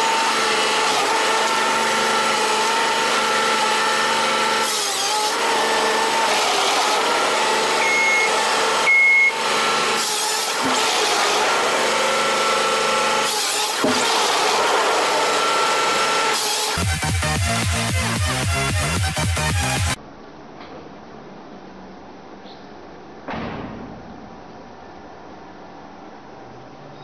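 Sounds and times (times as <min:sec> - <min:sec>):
harvester sawing logs: 0:00.0 - 0:19.9
engine and hydraulic drone: 0:00.0 - 0:20.0.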